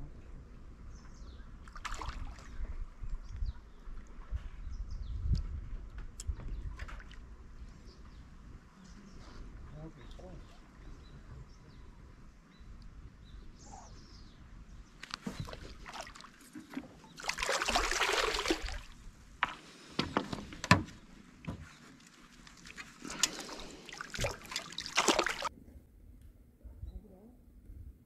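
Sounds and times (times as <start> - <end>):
fish splashing in water: 15.1 - 19.6, 21.9 - 25.5.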